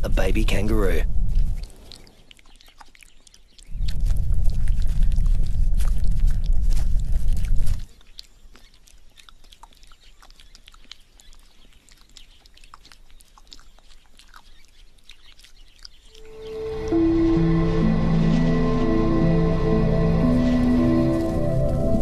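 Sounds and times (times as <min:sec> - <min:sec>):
animal licking fur: 0:01.3 - 0:17.0
muffled low rumble: 0:03.7 - 0:07.9
soft music: 0:16.1 - 0:22.0.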